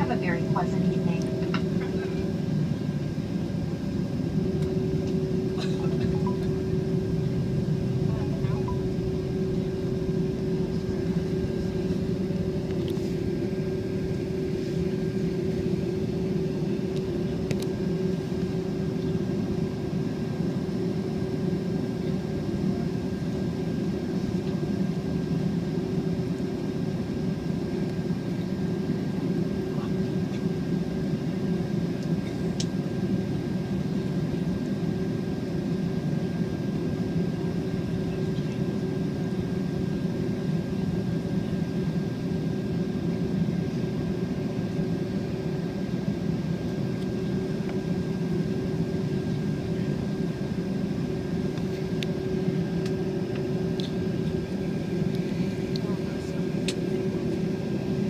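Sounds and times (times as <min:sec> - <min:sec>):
thin steady whine: 0:00.0 - 0:31.3
jet engines idling hum: 0:00.0 - 0:58.0.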